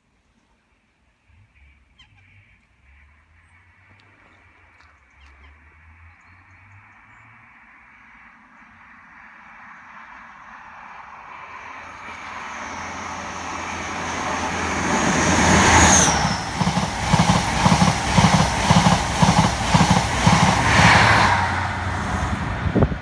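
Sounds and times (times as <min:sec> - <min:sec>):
train engine high whine: 0:07.6 - 0:23.0
train wheel clatter: 0:14.9 - 0:21.4.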